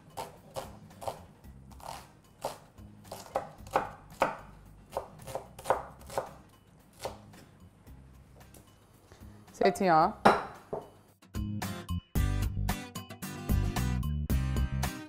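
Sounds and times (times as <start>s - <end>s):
knife chopping on wooden board: 0.2s - 6.4s, 7.0s - 7.4s, 10.2s - 10.9s.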